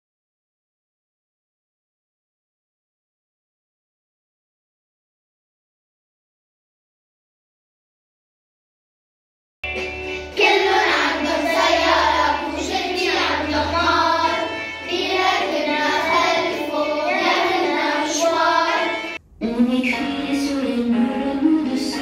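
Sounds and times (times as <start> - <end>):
children singing: 10.2 - 22.0.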